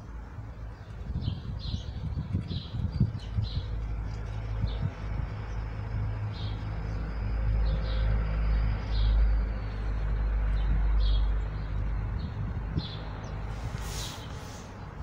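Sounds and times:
low outdoor rumble: 0.0 - 15.0.

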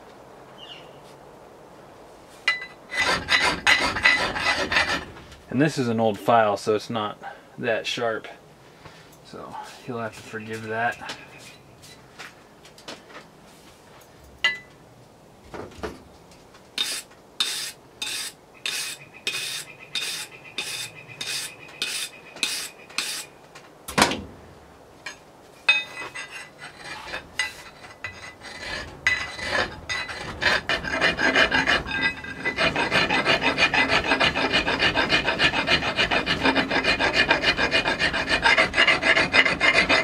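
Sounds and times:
file rasping on steel axe head: 2.9 - 5.1, 16.8 - 23.3, 25.9 - 40.0.

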